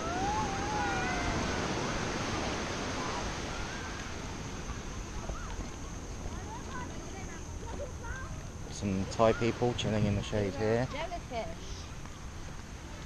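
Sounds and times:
high whistled glides: 0:00.0 - 0:05.4
surf on beach: 0:00.0 - 0:13.0
wind: 0:00.0 - 0:13.0.

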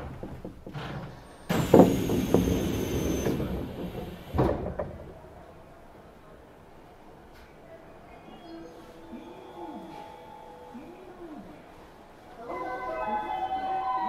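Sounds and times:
doors clunking shut: 0:00.0 - 0:05.2
train doors hissing: 0:00.9 - 0:04.8.

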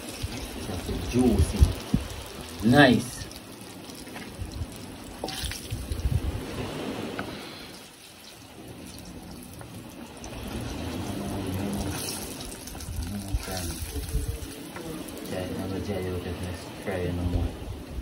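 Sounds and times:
frying in hot oil sizzling: 0:00.0 - 0:06.6, 0:07.2 - 0:17.0
low rumbles: 0:08.5 - 0:18.0.

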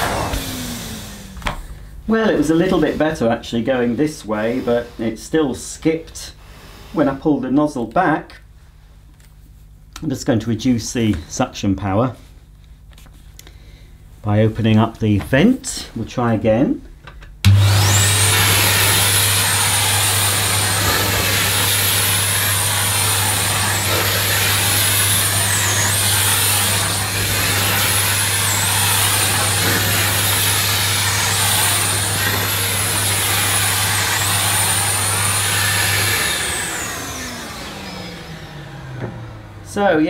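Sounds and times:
vacuum nozzle pushed over carpet: 0:00.0 - 0:01.4, 0:17.5 - 0:38.4
vacuum cleaner running: 0:00.0 - 0:05.0, 0:17.4 - 0:40.0.

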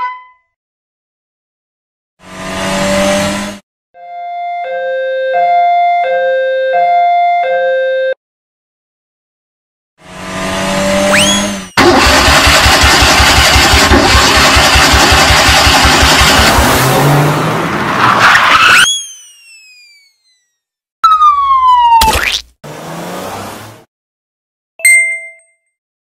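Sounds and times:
cartoon car engine revving: 0:02.2 - 0:03.6, 0:10.0 - 0:23.9
falling whistle tones: 0:11.1 - 0:11.6, 0:18.6 - 0:22.1
short rising whine: 0:11.1 - 0:11.8, 0:18.6 - 0:20.6.

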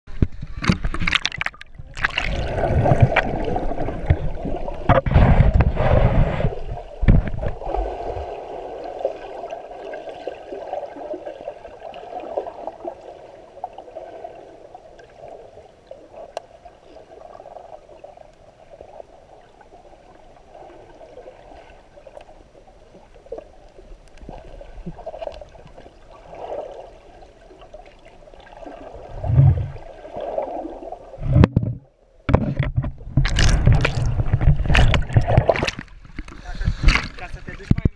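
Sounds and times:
muffled underwater rushing: 0:00.1 - 0:37.9.

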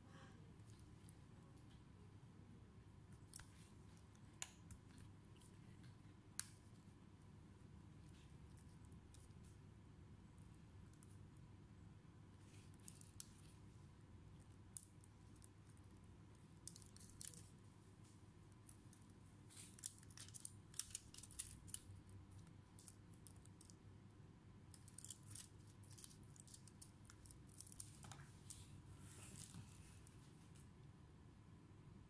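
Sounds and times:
fingers handling cables and film: 0:18.6 - 0:23.8.

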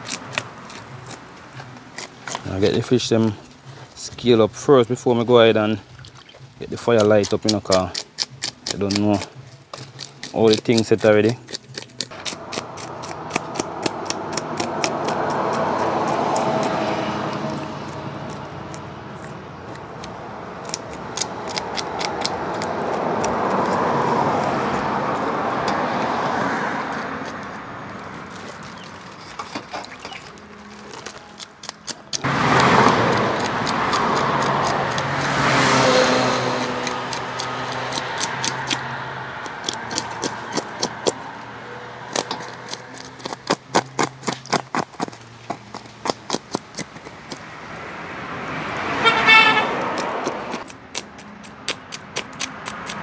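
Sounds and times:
knife scraping fish scales: 0:00.0 - 0:02.8, 0:06.9 - 0:19.8, 0:28.2 - 0:32.2, 0:32.8 - 0:41.2
vehicles passing by: 0:00.0 - 0:53.0.

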